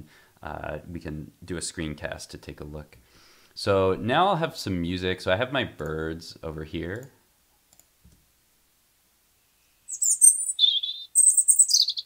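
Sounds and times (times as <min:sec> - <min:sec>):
recorded birdsong chirps and trill: 0:09.8 - 0:12.0.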